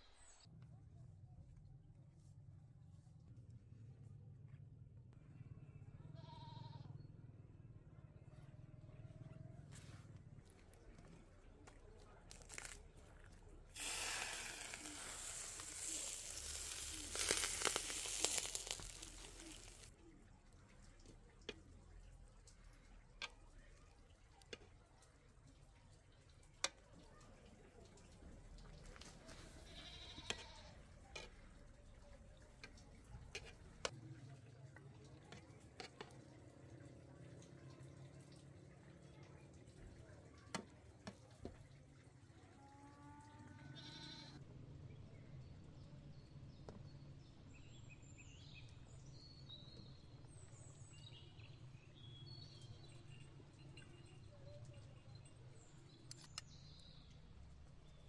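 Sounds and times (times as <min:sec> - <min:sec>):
crackling and popping spatters: 0:12.2 - 0:19.9
liquid sizzling on hot metal: 0:12.3 - 0:12.9, 0:13.7 - 0:19.9
liquid pouring into pot: 0:13.7 - 0:19.9.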